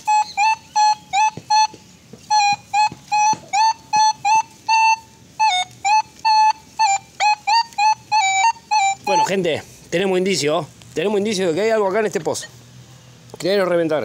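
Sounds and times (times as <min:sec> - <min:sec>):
metal detector beeping: 0:00.0 - 0:09.4.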